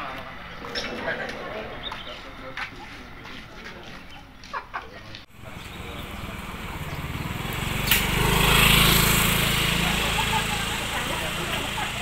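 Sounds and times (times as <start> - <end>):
distant voices: 0.0 - 12.0
low engine hum: 5.3 - 12.0.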